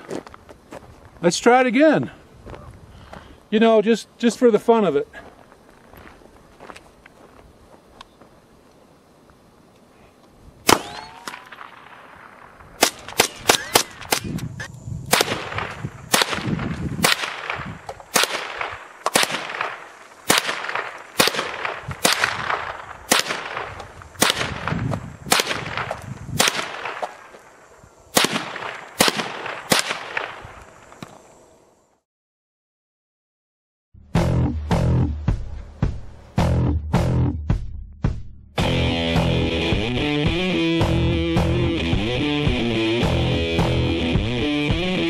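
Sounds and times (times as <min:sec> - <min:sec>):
rifle gunshots: 0:10.6 - 0:14.3, 0:15.1 - 0:27.2, 0:28.1 - 0:30.4.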